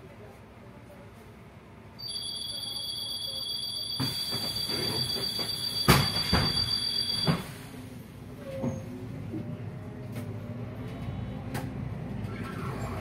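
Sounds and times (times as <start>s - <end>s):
bus running noise: 4.0s - 13.0s.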